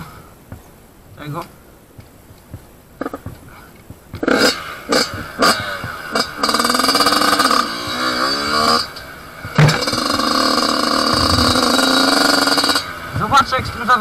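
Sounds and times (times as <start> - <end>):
motorcycle engine revving: 4.1 - 14.0
thump: 9.5 - 10.0.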